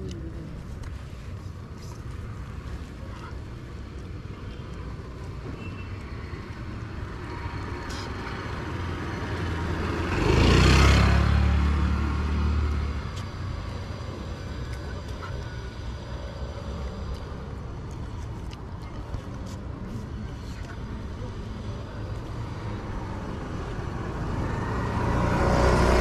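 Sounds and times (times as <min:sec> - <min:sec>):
vehicle passing on road: 0:00.0 - 0:26.0.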